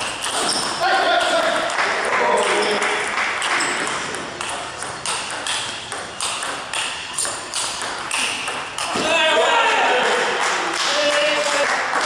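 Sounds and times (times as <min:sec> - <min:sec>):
table tennis ball clicking: 0:02.4 - 0:08.9.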